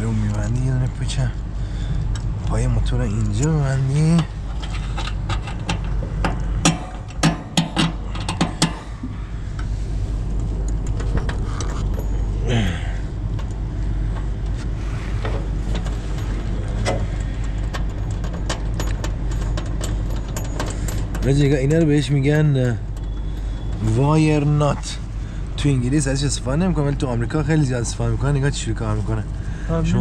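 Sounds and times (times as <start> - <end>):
steady low hum: 0.0 - 30.0
hand tools clinking on metal: 15.8 - 23.6.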